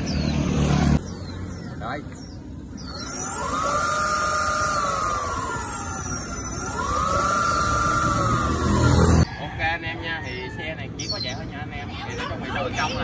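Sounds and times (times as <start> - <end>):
electric motor whine: 2.7 - 9.2.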